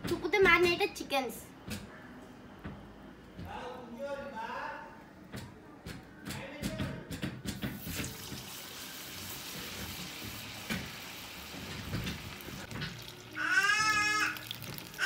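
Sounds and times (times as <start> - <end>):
chicken sizzling in hot oil: 7.8 - 15.0.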